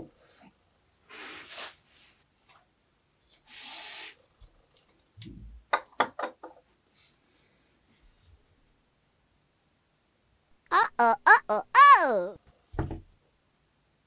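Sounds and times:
toy thumping on table: 12.8s - 13.0s.

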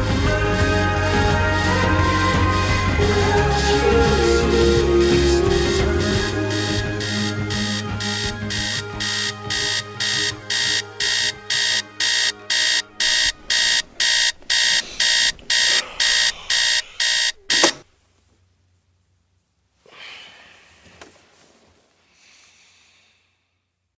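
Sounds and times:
music: 0.0s - 13.8s
electronic alarm beeping: 4.9s - 17.8s
faint rustle: 17.8s - 22.7s.

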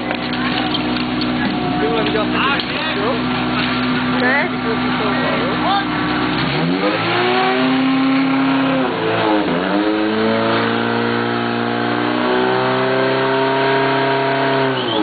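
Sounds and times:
small pump engine running: 0.0s - 6.1s.

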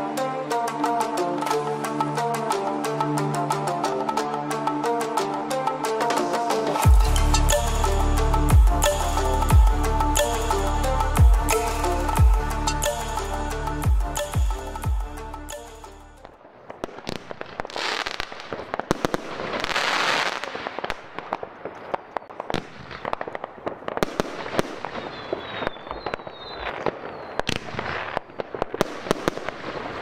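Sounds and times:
fireworks crackling: 16.2s - 30.0s
fireworks cracks and bangs: 16.3s - 30.0s.

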